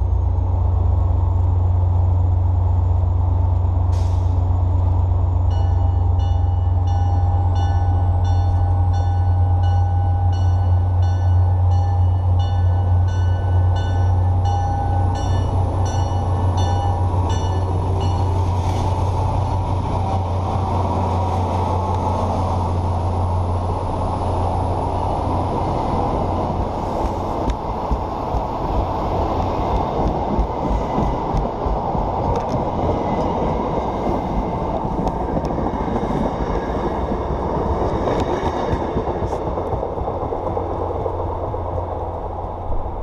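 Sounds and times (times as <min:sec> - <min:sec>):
diesel locomotive engine hum: 0:00.0 - 0:43.0
train bell ringing: 0:05.4 - 0:18.5.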